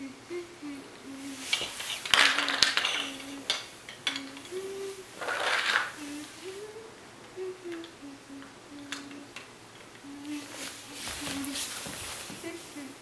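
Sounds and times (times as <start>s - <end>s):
person humming a tune: 0.0s - 1.6s, 2.2s - 13.0s
plastic toy pieces clicking: 2.0s - 4.5s.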